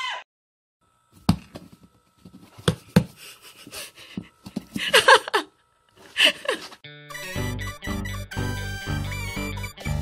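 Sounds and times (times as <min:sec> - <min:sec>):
knocks on cardboard box: 0:01.2 - 0:01.9.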